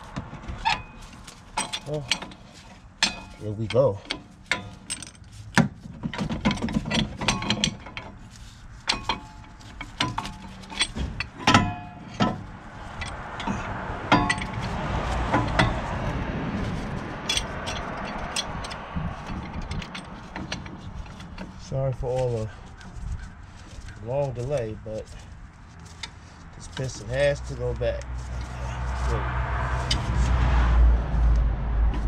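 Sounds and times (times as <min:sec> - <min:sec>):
rough steady noise: 0:00.0 - 0:32.0
hand tools knocking on metal: 0:08.9 - 0:16.2.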